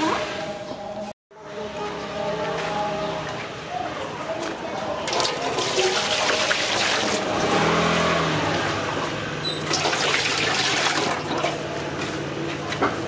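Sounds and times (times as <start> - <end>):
water pouring into metal basin: 5.0 - 7.4, 9.6 - 11.5.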